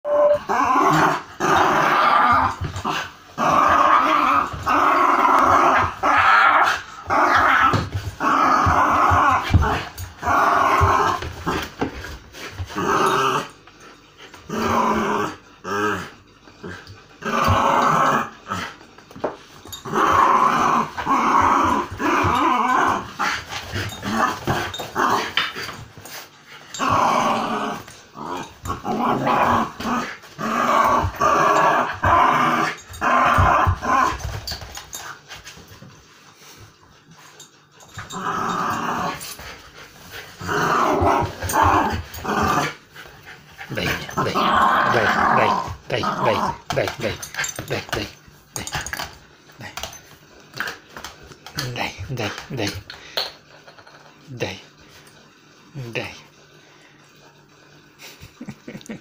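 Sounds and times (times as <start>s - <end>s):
small dog growling: 40.4s - 42.8s, 43.6s - 46.9s.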